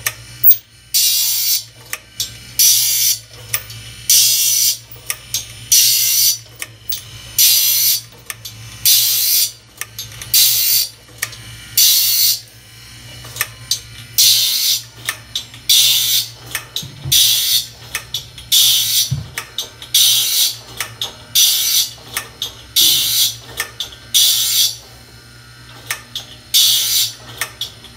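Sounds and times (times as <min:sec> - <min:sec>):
saw blade grinding: 0:14.2 - 0:14.9, 0:26.6 - 0:27.2.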